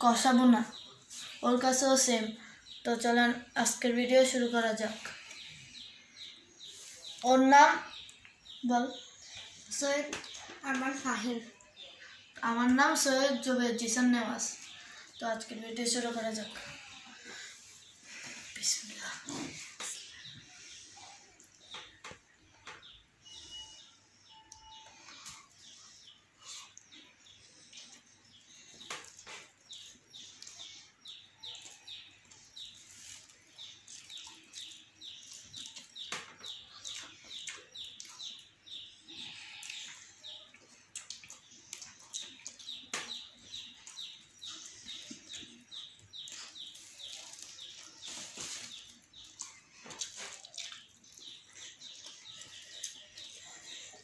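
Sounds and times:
chewing: 0:31.5 - 0:36.0, 0:39.2 - 0:42.9, 0:46.2 - 0:54.0.

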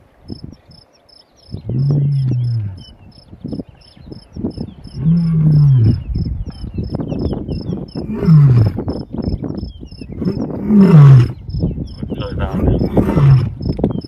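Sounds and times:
lion roaring: 0:01.6 - 0:02.9, 0:05.0 - 0:06.1, 0:08.0 - 0:08.8, 0:10.2 - 0:11.4, 0:12.3 - 0:13.6.

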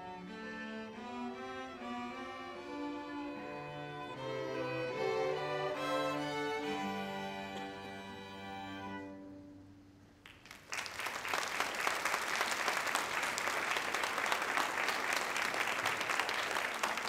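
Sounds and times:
string orchestra chord: 0:00.0 - 0:09.9
audience applause: 0:10.2 - 0:17.0.

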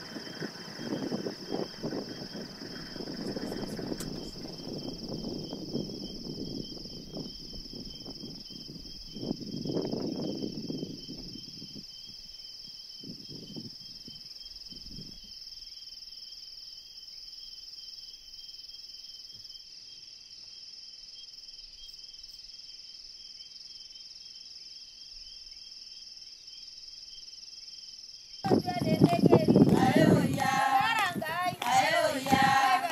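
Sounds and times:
crickets shrilling: 0:00.0 - 0:15.8, 0:27.7 - 0:32.9.

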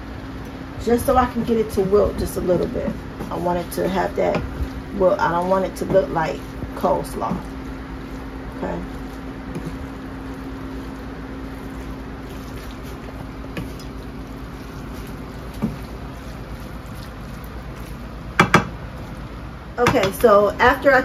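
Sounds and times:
spatula scraping a pan: 0:01.4 - 0:18.1
sharp knocks: 0:18.4 - 0:18.8.

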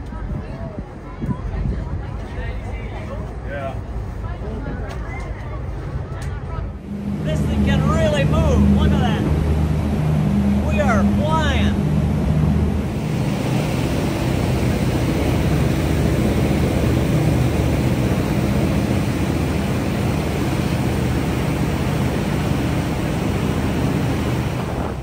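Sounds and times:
boat engines droning: 0:00.0 - 0:25.0
wake churning water: 0:06.8 - 0:25.0.

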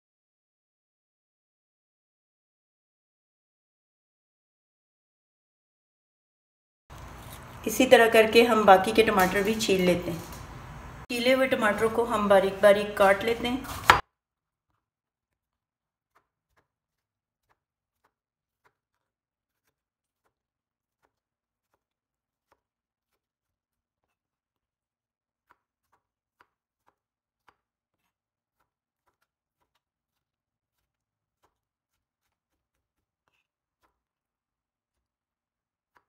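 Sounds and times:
knife tapping plastic cutting board: 0:12.8 - 0:14.0.

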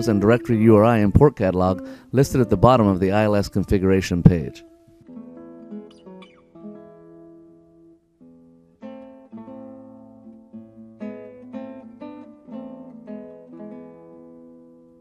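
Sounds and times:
acoustic guitar music: 0:00.0 - 0:15.0.

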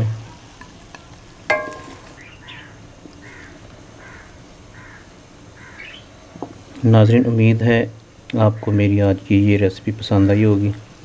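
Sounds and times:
utensil clinking on dish: 0:01.5 - 0:02.2
crow cawing: 0:02.4 - 0:06.1.

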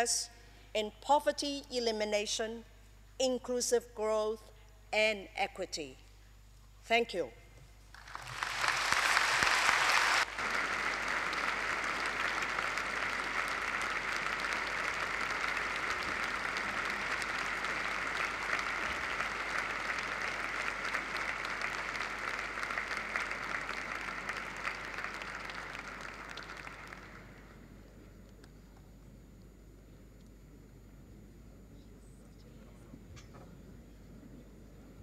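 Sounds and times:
audience applauding: 0:08.0 - 0:27.5.

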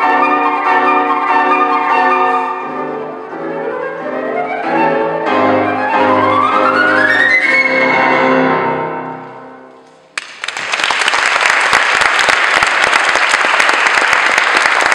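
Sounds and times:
flute and piano playing: 0:00.0 - 0:09.7
applause: 0:10.2 - 0:14.9.

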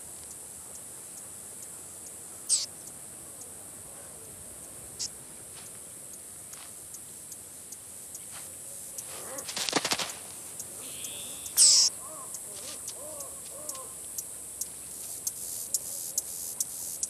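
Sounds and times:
insect hiss: 0:00.0 - 0:17.0
bird calls: 0:02.5 - 0:02.7, 0:08.1 - 0:16.3.

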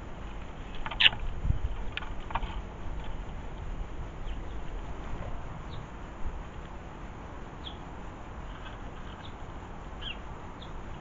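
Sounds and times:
low microphone rumble: 0:01.2 - 0:08.3
faint high bird chirps: 0:07.6 - 0:07.8.

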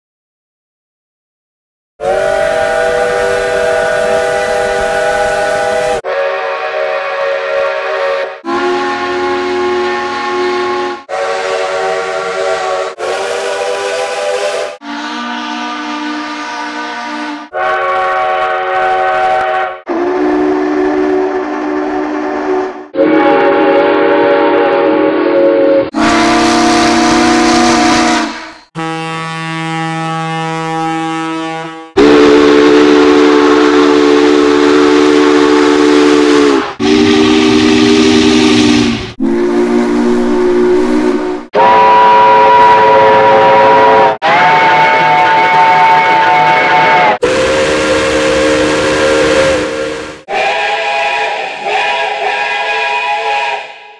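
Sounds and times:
steam locomotive whistles: 0:02.0 - 0:53.9.

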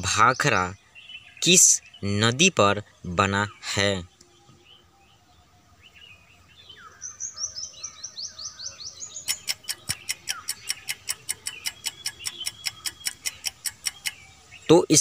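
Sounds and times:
high falling bird chirps: 0:00.0 - 0:15.0
timer clock ticking: 0:09.3 - 0:14.2.

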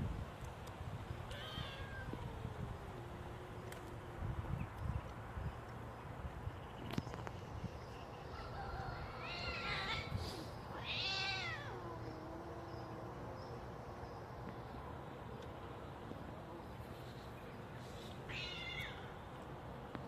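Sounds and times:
cats yowling: 0:01.3 - 0:02.6, 0:09.1 - 0:10.1, 0:10.7 - 0:13.0.

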